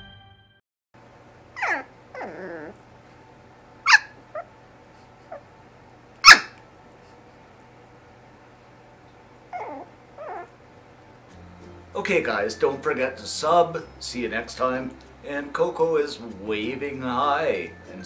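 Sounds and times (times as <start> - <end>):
puppy yipping and barking: 1.6 - 2.8, 3.8 - 4.5, 6.2 - 6.6, 9.5 - 10.6.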